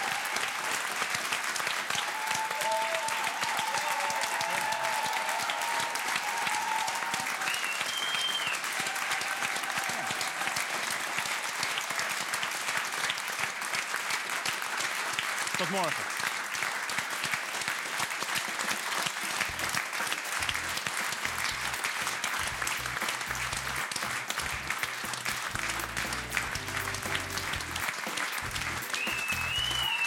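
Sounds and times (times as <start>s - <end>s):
audience applauding: 0.0s - 30.0s
music: 19.4s - 30.0s.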